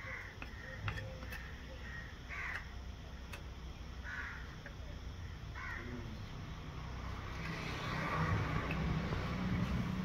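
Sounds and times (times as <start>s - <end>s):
bird cawing harshly: 1.4s - 2.7s, 4.0s - 4.5s, 5.5s - 5.9s.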